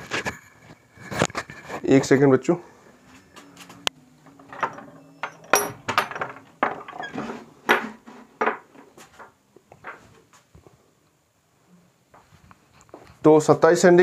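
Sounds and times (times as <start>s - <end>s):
objects knocking and clinking: 4.2s - 10.0s.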